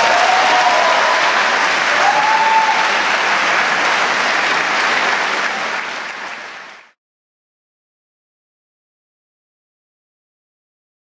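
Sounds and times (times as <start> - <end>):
call from crowd: 0.0 - 6.9
audience applauding: 0.0 - 7.0.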